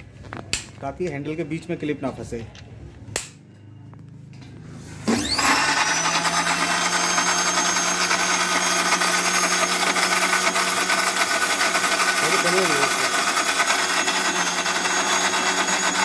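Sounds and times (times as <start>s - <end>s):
mixer grinder motor grinding: 5.0s - 16.0s.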